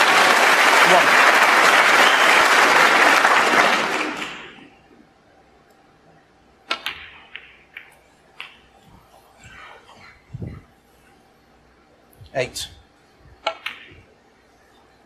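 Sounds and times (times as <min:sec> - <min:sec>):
audience applause: 0:00.0 - 0:04.7.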